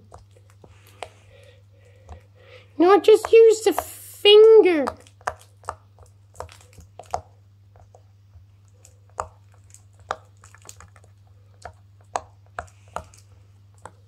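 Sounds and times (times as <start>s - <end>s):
pop-it toy popping: 3.2s - 8.0s.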